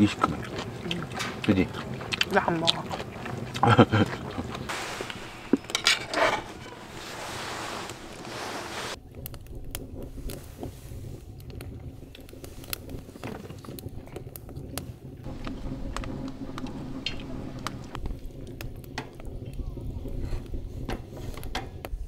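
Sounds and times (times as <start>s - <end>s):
low rumble: 0.0s - 21.2s
wood fire crackling: 0.0s - 22.0s
steady hiss: 4.7s - 22.0s.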